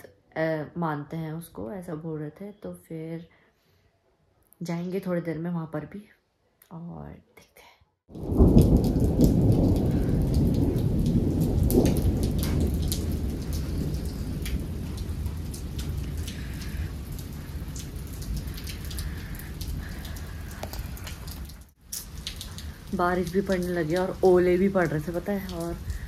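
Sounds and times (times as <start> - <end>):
hail ticking: 8.1 - 26.0
steady rain: 8.1 - 26.0
thunder rolling: 8.1 - 26.0.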